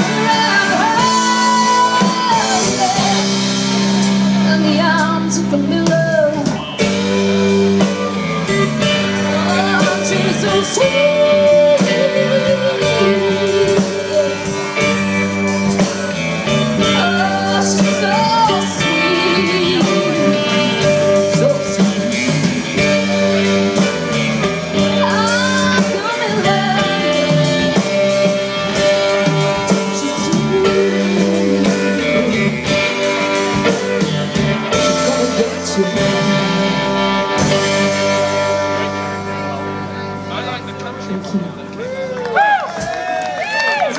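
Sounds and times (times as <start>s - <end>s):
woman singing: 0.0s - 3.6s, 4.4s - 7.1s, 8.8s - 15.0s, 16.4s - 23.0s, 24.8s - 38.1s
rock band playing: 0.0s - 43.9s.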